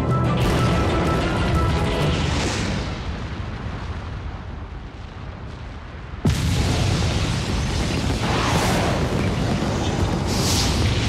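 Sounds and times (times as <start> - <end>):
loud explosive blast: 0.4 - 4.5, 6.2 - 11.0
deep volcanic rumble: 2.1 - 11.0.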